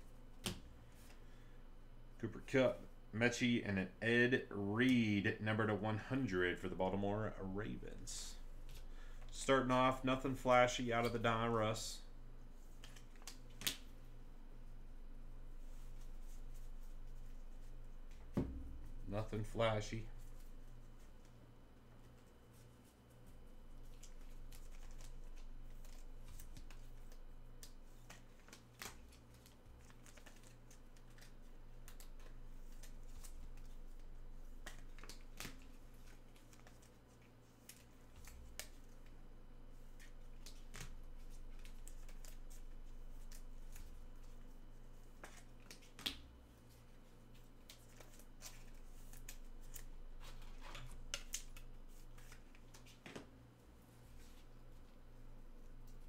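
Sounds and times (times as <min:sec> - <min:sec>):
steady low hum: 0:00.0 - 0:28.4
cards and packaging handled: 0:12.5 - 0:13.9, 0:22.0 - 0:53.4.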